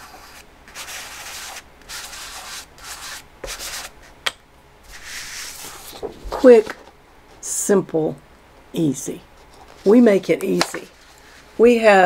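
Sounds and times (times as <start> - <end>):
chalk pastel rubbing on paper: 0.0 - 3.9, 4.9 - 5.9.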